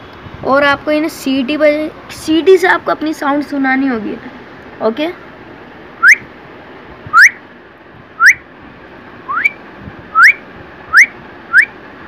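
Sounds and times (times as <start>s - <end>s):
person whistling upward: 6.0s - 6.2s, 7.1s - 7.4s, 8.2s - 8.4s, 9.3s - 9.6s, 10.2s - 11.7s.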